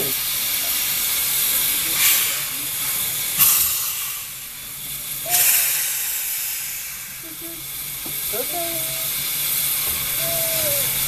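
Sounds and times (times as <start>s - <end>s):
bursts of steam: 0.0s - 11.0s
steam locomotive hissing: 0.0s - 11.0s.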